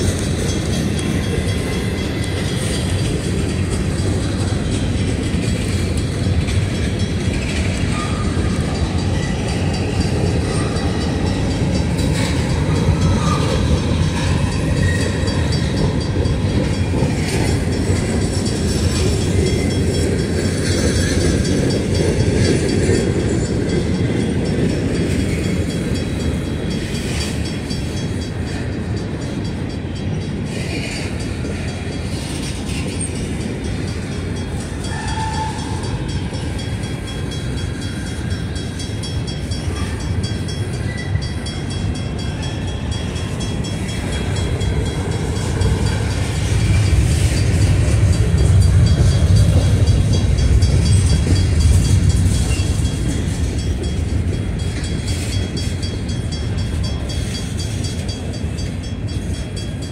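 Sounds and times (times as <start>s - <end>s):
train wheels rumbling on rail: 0.0s - 59.9s
wheels clicking over rail joints: 0.0s - 59.9s.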